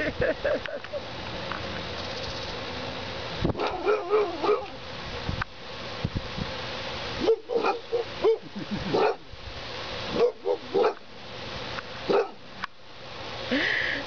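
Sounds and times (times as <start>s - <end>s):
steady background hiss: 0.0s - 14.0s
dog yipping barks: 3.6s - 4.8s, 7.2s - 9.2s, 10.1s - 11.0s, 12.1s - 12.4s.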